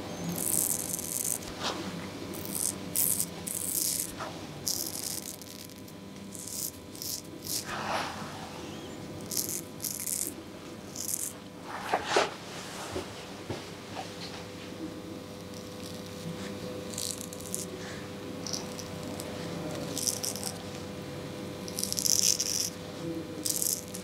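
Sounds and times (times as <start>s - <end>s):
razor scraping stubble: 0.2s - 12.3s, 15.2s - 20.9s, 21.7s - 22.8s.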